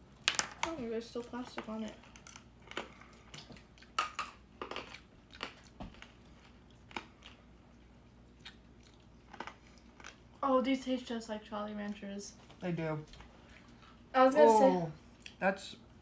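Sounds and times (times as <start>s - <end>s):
hard candy crunching: 0.2s - 10.4s.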